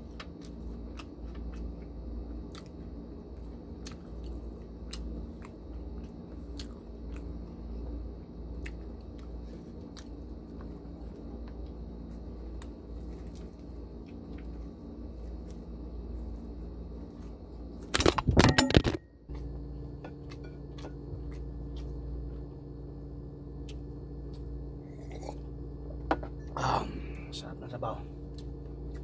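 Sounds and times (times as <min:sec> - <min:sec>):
low room hum: 0:00.0 - 0:29.0
small clicks of eating: 0:00.1 - 0:07.6, 0:08.5 - 0:15.7.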